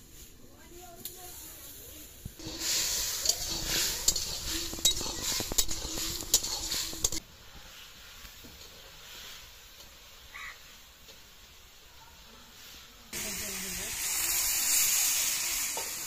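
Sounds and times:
food sizzling in a pan: 0:00.0 - 0:16.0
metal spatula scraping iron pan: 0:02.4 - 0:07.2.

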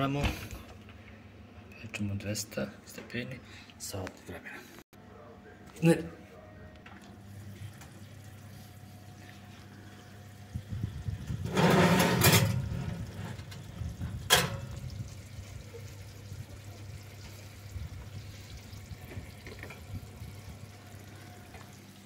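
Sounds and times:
steady low hum: 0:02.6 - 0:21.6
glass dish sliding on oven rack: 0:11.4 - 0:13.5.

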